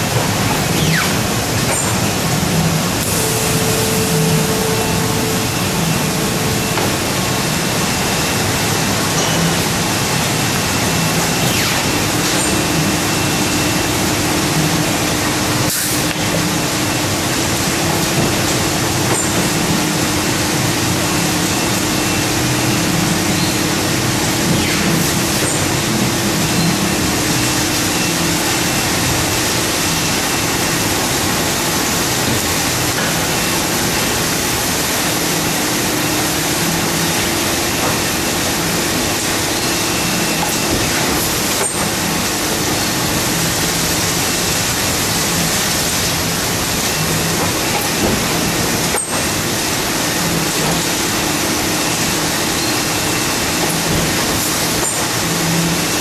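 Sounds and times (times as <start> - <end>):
low machine hum: 0.0 - 15.6
cutting machine running: 1.2 - 12.1.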